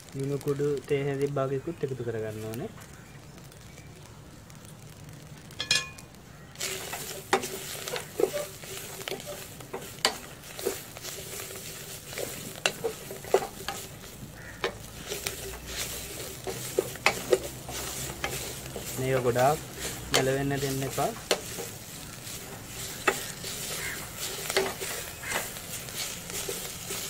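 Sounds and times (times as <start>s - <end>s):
greens sizzling in a pot: 0.0s - 27.0s
spatula scraping and knocking pot: 5.6s - 27.0s.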